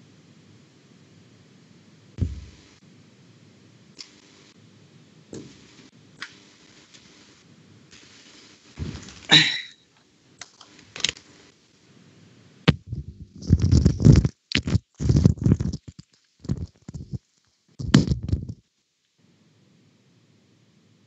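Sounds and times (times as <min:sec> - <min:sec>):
microphone click: 0:02.2 - 0:02.6
rubbing and bumping against microphone: 0:02.2 - 0:02.6, 0:08.8 - 0:09.3, 0:12.7 - 0:18.6.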